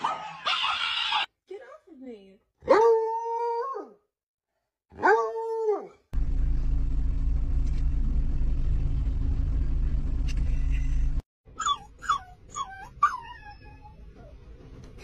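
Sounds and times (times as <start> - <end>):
low rumble inside a car: 6.2 - 11.2.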